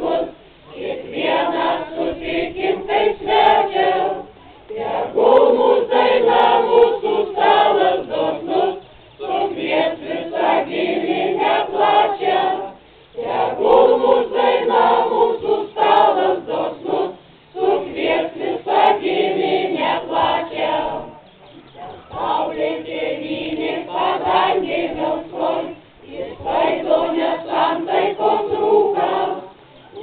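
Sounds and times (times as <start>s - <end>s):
choir singing unaccompanied: 0.0s - 30.0s.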